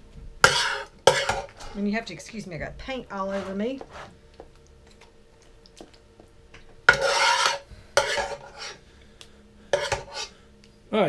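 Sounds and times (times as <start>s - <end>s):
spoon scraping a cooking pot: 0.4s - 1.8s, 3.2s - 4.2s, 6.9s - 8.8s, 9.7s - 10.3s.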